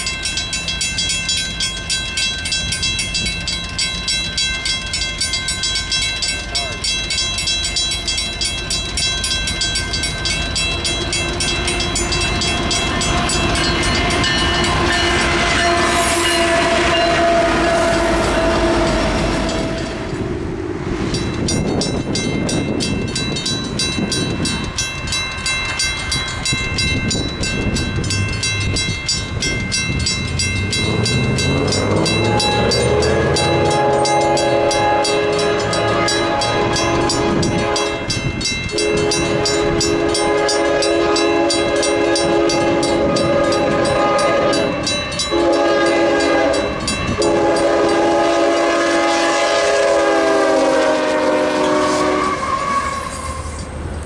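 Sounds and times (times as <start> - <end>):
railroad crossing bells ringing: 0.0 - 54.0
train horn: 10.9 - 20.6, 30.8 - 53.6
rising tone: 30.0 - 37.3.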